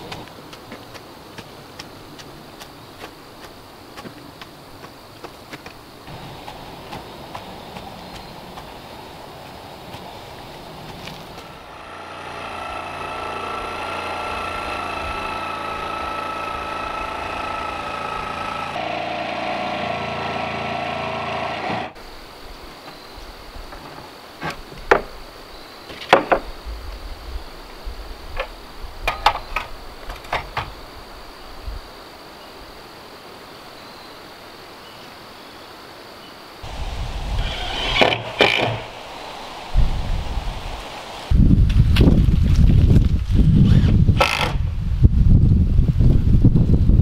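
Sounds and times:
machine whining: 11.4 - 22.0, 36.6 - 41.5.

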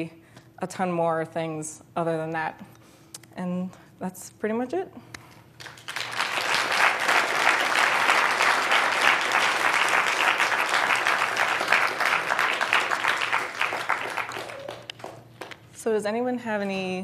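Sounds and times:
audience applauding: 5.6 - 15.6.

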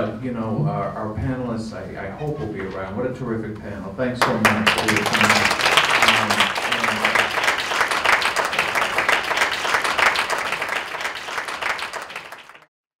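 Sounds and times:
audience applauding: 4.2 - 12.7.

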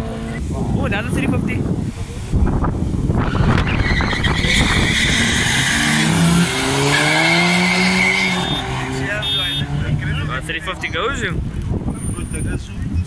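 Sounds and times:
car engines revving hard: 0.0 - 12.8
tyre squeal: 3.2 - 9.7.

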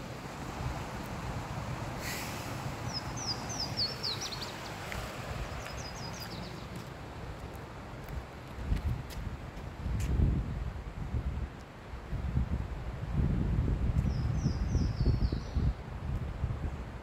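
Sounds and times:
wind rumble on microphone: 0.0 - 17.0
songbird singing high notes: 2.9 - 4.7.

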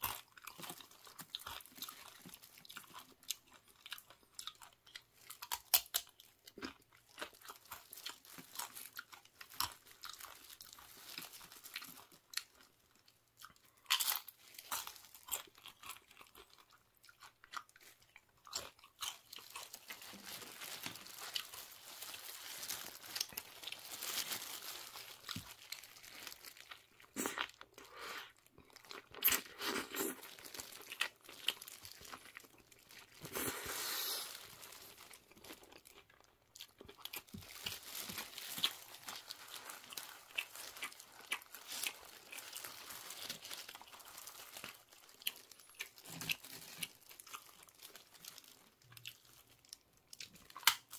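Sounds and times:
chips crunched and chewed: 0.0 - 50.9.

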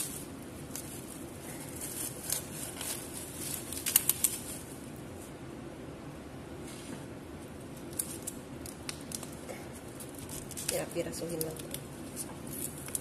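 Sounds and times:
plastic bag crinkling: 0.0 - 4.8, 7.8 - 13.0
low background hum: 0.0 - 13.0.

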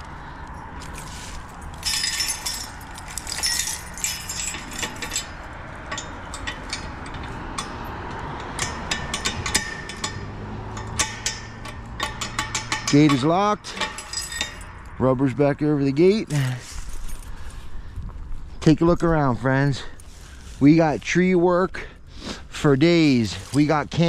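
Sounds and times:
padlock hardware rattling: 0.0 - 15.0.

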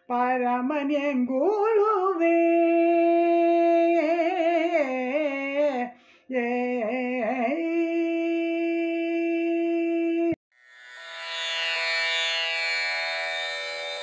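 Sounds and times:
instrumental music: 10.6 - 14.0.

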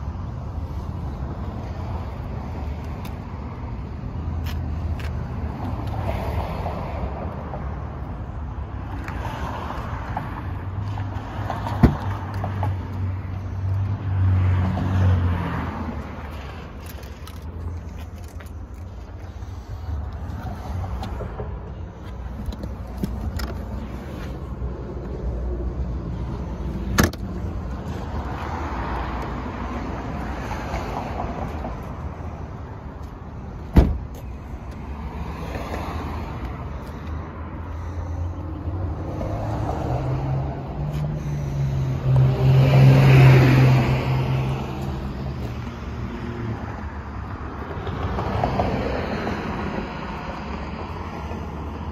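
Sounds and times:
street traffic rumbling: 0.0 - 51.9
vehicle passing loudly: 38.1 - 46.5.

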